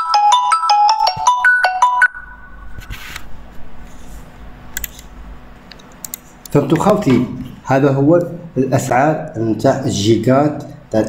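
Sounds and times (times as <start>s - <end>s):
electronic beeping jingle: 0.0s - 2.7s
sharp clicks: 4.7s - 5.1s, 5.7s - 6.9s.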